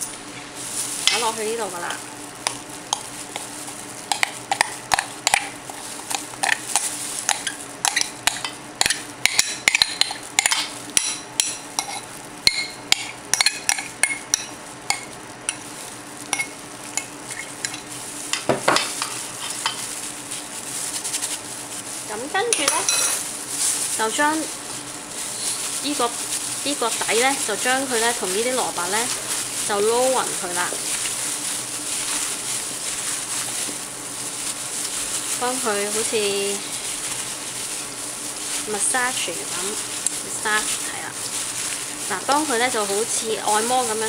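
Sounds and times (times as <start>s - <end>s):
spoon clinking against bowl: 7.3s - 12.8s
metal spoon scraping bowl: 22.6s - 23.2s.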